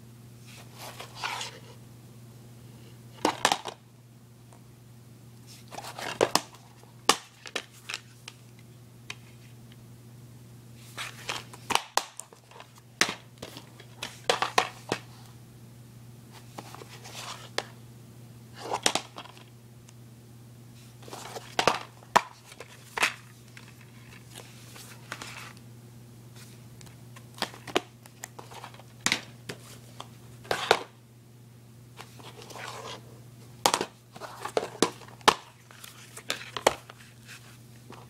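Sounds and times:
plastic cases clacking: 33.6s - 35.6s.

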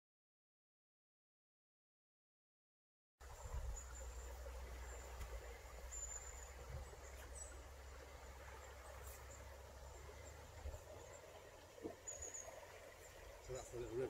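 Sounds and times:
wind rumble on microphone: 3.2s - 4.0s.

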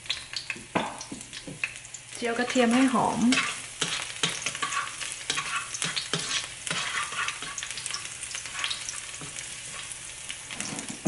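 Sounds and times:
garlic sizzling in hot oil: 0.0s - 11.0s
spatula scraping a wok: 2.4s - 11.0s.

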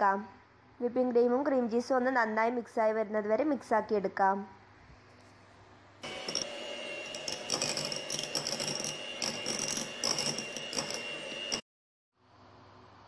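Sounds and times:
electric hand mixer whining: 6.0s - 11.6s.

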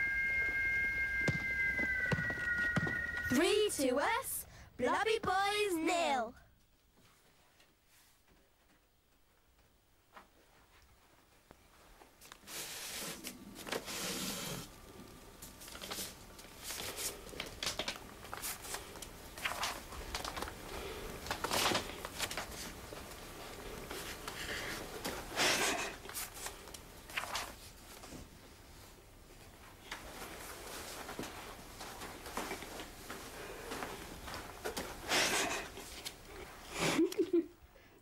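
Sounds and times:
book pages rustling: 15.6s - 20.6s, 21.2s - 22.8s, 26.1s - 28.2s.

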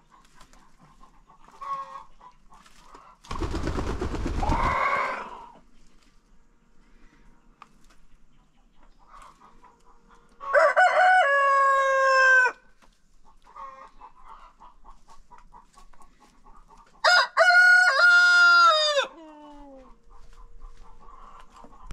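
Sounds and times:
hens clucking softly: 0.0s - 3.3s, 6.9s - 10.6s, 12.8s - 17.0s, 19.0s - 21.9s
roosters crowing: 4.3s - 5.6s, 10.4s - 12.7s, 17.0s - 19.5s.

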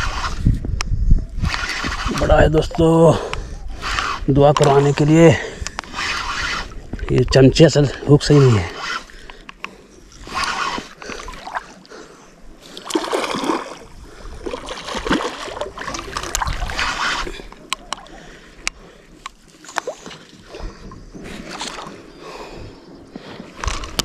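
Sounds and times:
fingers scraping reel handle: 0.0s - 0.6s, 1.3s - 11.8s, 15.8s - 19.9s, 23.5s - 24.0s.

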